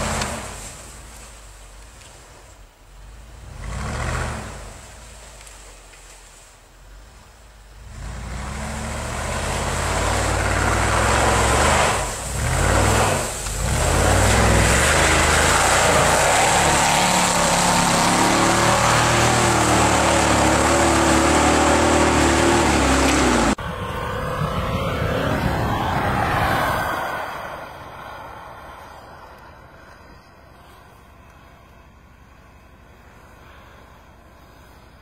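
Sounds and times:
engine pulling hard: 0.0s - 1.5s, 3.0s - 5.6s, 7.7s - 29.1s.

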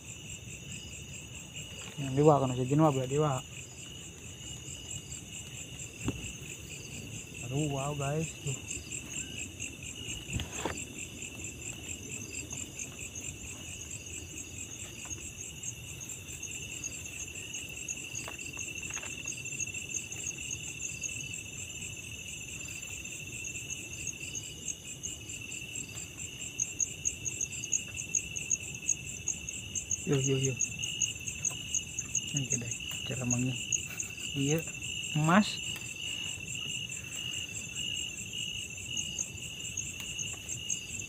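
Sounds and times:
insects trilling: 0.0s - 41.0s
insects shrill tone: 5.9s - 10.9s.

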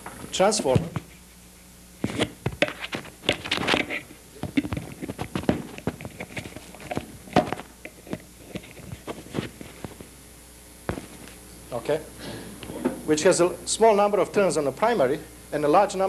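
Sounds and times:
lavalier microphone rustling and knocking: 0.0s - 1.2s, 2.0s - 10.1s, 10.9s - 11.4s.

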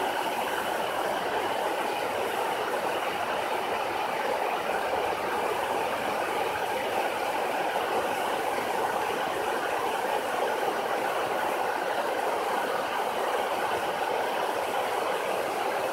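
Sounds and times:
water rushing over spillway: 0.0s - 15.9s.

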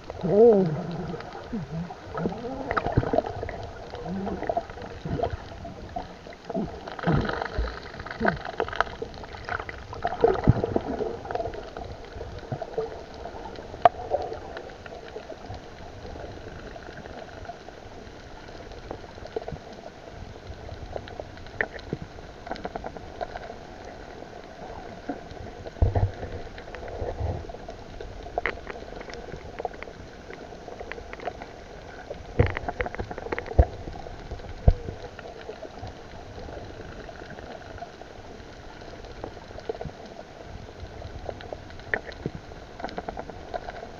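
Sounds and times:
underwater bubbling hiss: 0.0s - 43.9s.

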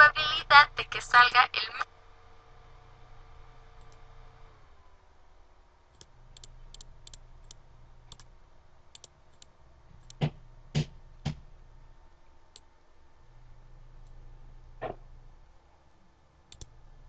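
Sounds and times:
loud knocks: 10.2s - 11.5s, 14.8s - 15.0s.

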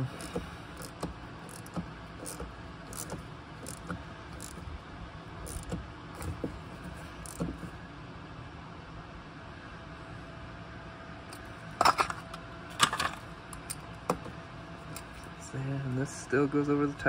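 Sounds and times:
wrench clicking on metal: 0.0s - 4.6s, 5.4s - 6.5s, 7.2s - 7.6s
steady low hum: 0.0s - 17.0s.

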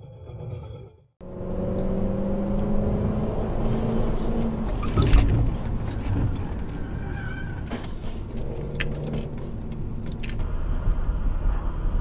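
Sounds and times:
car engine and road noise: 1.2s - 12.0s.

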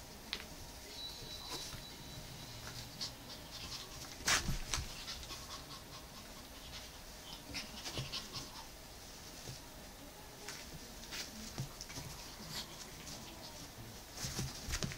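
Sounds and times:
dog panting: 2.8s - 8.8s
scuffles and paw taps: 10.4s - 14.9s.

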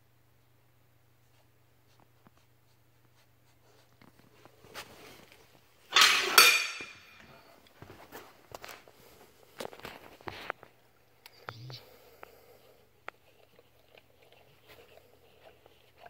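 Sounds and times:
dog rustling on a mat: 1.2s - 5.7s.

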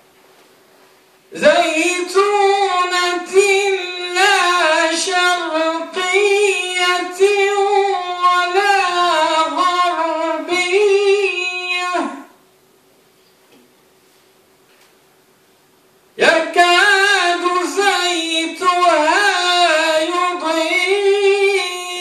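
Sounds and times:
man chanting recitation: 1.3s - 12.4s, 16.2s - 22.0s.

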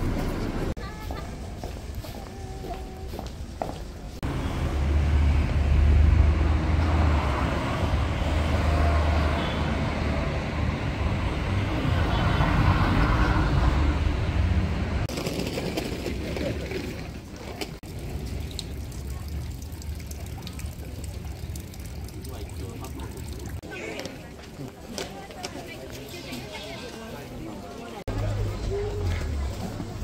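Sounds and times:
vehicle engine rumbling: 0.0s - 23.7s, 28.0s - 30.0s
street noise: 0.0s - 30.0s.

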